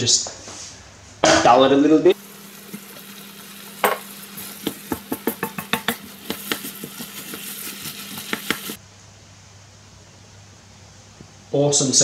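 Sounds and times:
rice sizzling in a wok: 0:02.1 - 0:08.8
wooden spatula scraping a pan: 0:04.4 - 0:08.8.

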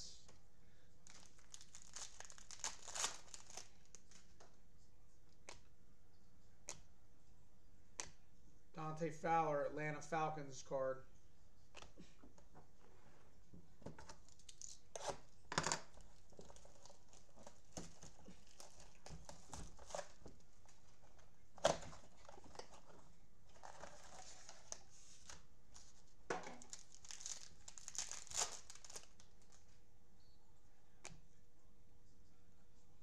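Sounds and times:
plastic wrapping crinkling and tearing: 0:01.0 - 0:04.4, 0:14.2 - 0:29.8.

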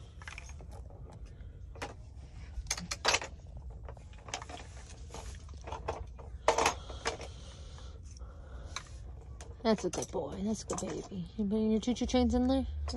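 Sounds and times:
low steady hum: 0:00.0 - 0:12.9.

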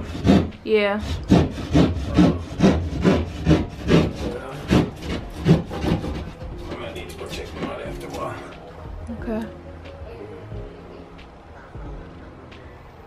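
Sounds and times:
hand saw cutting panelling: 0:00.0 - 0:08.3.

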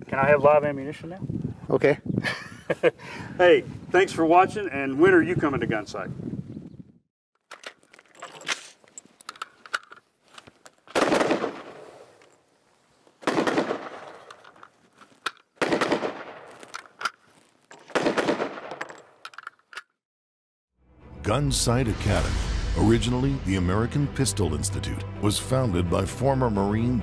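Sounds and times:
rifle bursts of fire: 0:11.0 - 0:11.8, 0:13.2 - 0:14.1, 0:15.6 - 0:16.4, 0:17.9 - 0:18.7.

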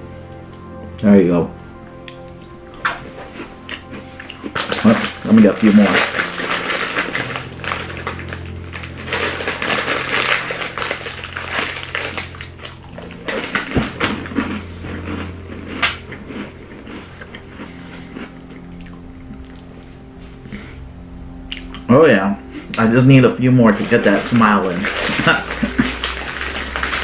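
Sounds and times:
steady low hum: 0:00.0 - 0:27.0
biscuits crunching while chewed: 0:02.0 - 0:20.6, 0:23.7 - 0:27.0
plastic wrapper crinkling: 0:04.2 - 0:14.6, 0:23.7 - 0:27.0.

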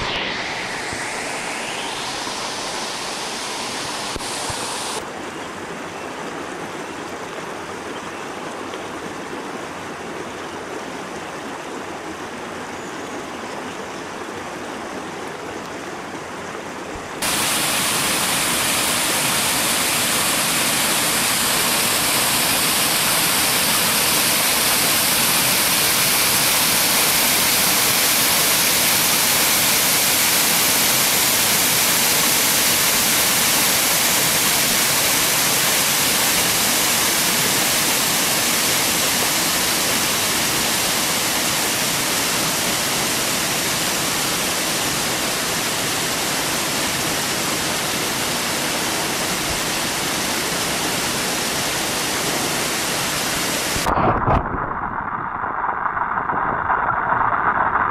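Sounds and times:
rushing stream water: 0:00.0 - 0:54.6
water pouring into a pool: 0:17.2 - 0:47.0, 0:49.6 - 0:57.9.

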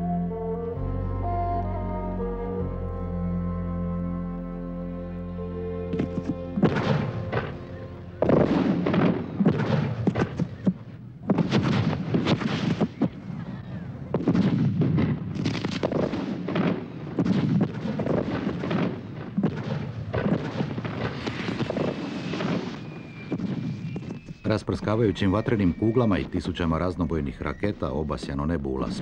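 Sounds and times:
fireworks barrage bangs: 0:06.6 - 0:13.4, 0:14.1 - 0:24.5.

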